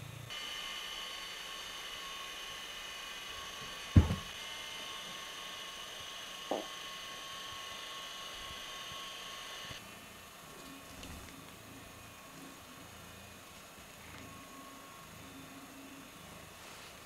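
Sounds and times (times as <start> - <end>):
dull thump: 4.0 - 4.3.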